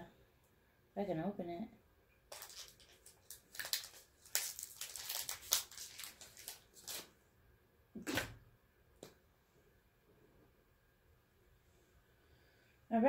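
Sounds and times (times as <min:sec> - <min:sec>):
foil wrapper tearing and crinkling: 0:02.3 - 0:07.1.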